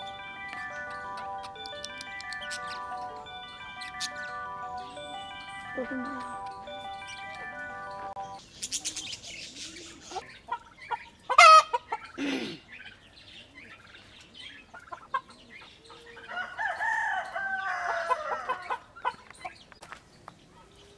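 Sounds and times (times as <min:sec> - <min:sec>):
music: 0:00.0 - 0:08.4
birds chirping: 0:00.0 - 0:20.9.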